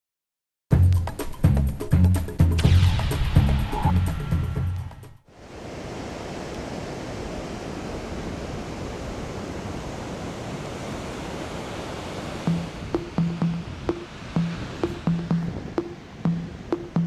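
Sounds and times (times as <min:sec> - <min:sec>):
ocean surf on beach: 0:05.3 - 0:17.0.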